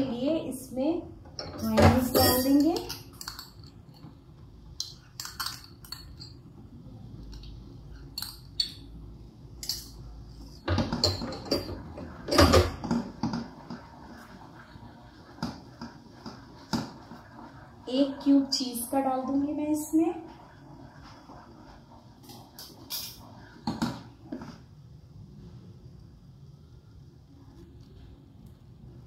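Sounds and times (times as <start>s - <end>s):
utensils clattering: 1.4s - 4.1s, 9.6s - 10.0s, 10.7s - 12.9s, 22.6s - 23.2s
metal spoon clinking on glass bowl: 2.0s - 3.8s, 8.1s - 8.9s, 9.6s - 10.0s
spatula scraping a pan: 11.2s - 24.6s.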